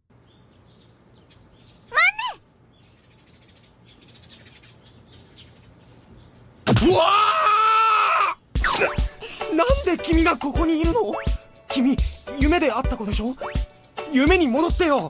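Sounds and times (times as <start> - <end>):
faint bird chirps: 0.1 - 6.7
girl's short high voice: 1.9 - 2.4.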